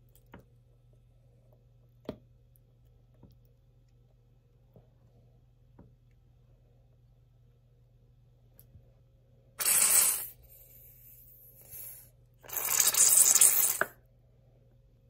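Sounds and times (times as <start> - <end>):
squeeze bottle squirting: 9.6 - 10.4, 12.5 - 13.9.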